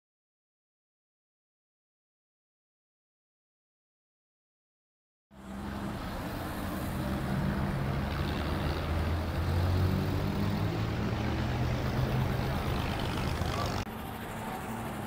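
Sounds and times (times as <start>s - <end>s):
sports car engines running: 10.5s - 15.0s.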